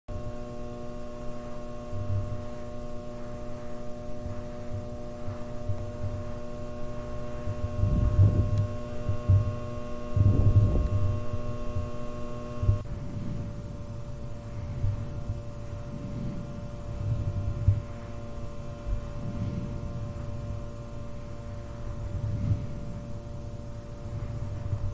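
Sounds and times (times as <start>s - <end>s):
fluorescent light hum: 0.1s - 24.9s
irregular low thumps: 1.2s - 12.0s.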